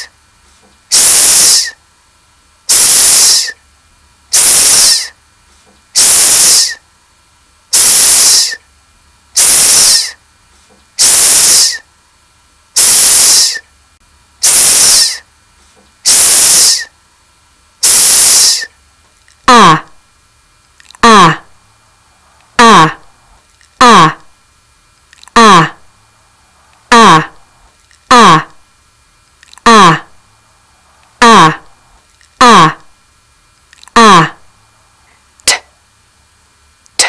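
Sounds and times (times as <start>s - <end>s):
person hissing sss: 0.9s - 1.8s, 2.7s - 3.6s, 4.3s - 5.2s, 5.9s - 6.9s, 7.7s - 8.7s, 9.4s - 10.2s, 11.0s - 11.9s, 12.8s - 13.7s, 14.4s - 15.3s, 16.0s - 17.0s, 17.8s - 18.8s, 19.4s - 20.0s, 20.9s - 24.3s, 25.2s - 25.9s, 26.5s - 28.6s, 29.6s - 32.9s, 33.8s - 34.5s, 35.5s - 35.8s.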